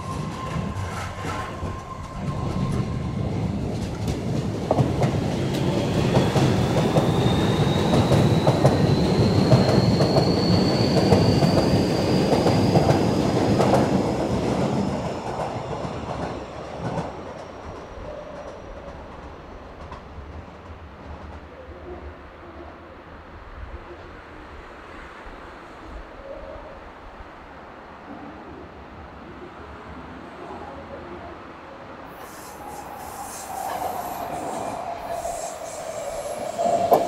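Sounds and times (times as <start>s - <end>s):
train wheels rumbling on rails: 0.0s - 21.6s, 32.1s - 37.0s.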